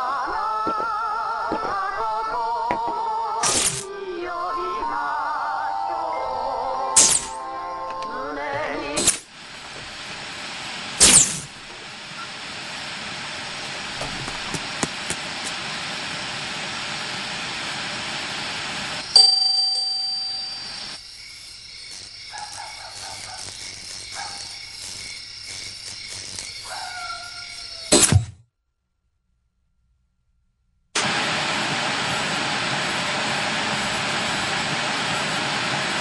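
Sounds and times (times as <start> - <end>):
steady hiss: 6.5 - 28.1
sharp ringing strike: 19.2 - 21.0.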